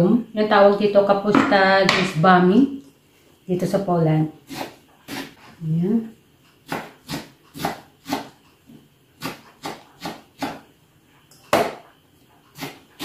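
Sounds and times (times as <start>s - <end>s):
knife chopping on wooden board: 6.6s - 8.4s, 9.2s - 10.6s, 11.5s - 11.9s, 12.6s - 13.0s.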